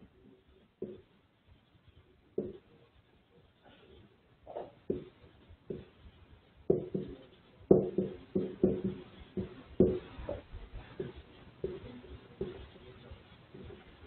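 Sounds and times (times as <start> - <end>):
marker tapping on whiteboard: 0.8 - 1.1, 2.3 - 2.7, 4.5 - 6.0, 6.7 - 12.8, 13.5 - 13.8.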